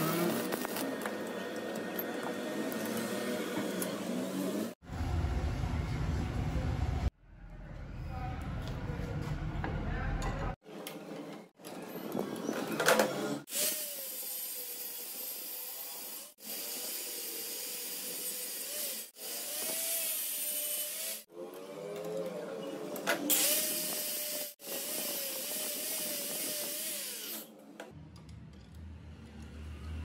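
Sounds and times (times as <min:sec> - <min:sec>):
low hum: 0:04.8 - 0:10.5
angle grinder cutting metal: 0:13.5 - 0:21.3, 0:23.3 - 0:27.5.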